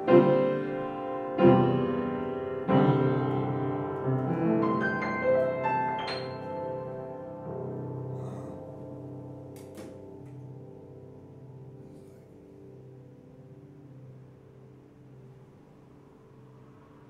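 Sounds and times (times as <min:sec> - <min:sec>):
upright piano chords and notes: 0:00.0 - 0:17.0.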